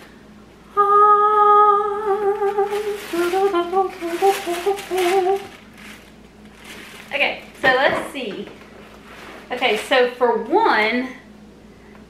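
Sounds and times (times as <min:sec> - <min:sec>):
woman singing: 0:00.7 - 0:05.6
tissue paper rustling: 0:02.3 - 0:07.6, 0:08.8 - 0:10.2.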